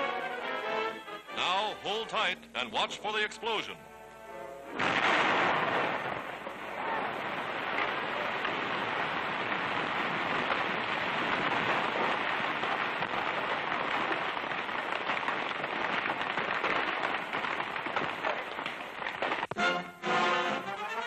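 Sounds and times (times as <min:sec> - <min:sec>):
crackling hiss of falling water and debris: 0:04.8 - 0:19.8.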